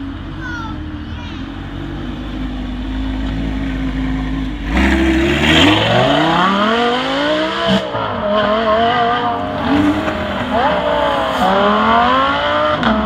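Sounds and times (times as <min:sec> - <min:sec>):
sports car engine revving: 0:01.6 - 0:13.0.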